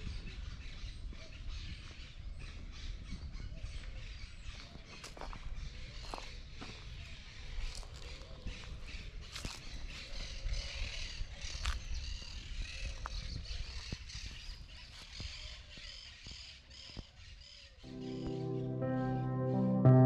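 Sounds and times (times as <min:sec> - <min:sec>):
wind rumble on microphone: 0:00.0 - 0:17.4
keyboard chords music: 0:17.9 - 0:20.0.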